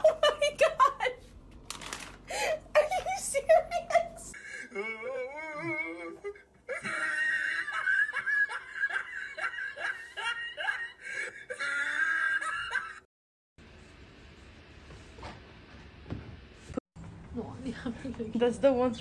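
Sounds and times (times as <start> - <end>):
person laughing hard: 6.7 - 13.1.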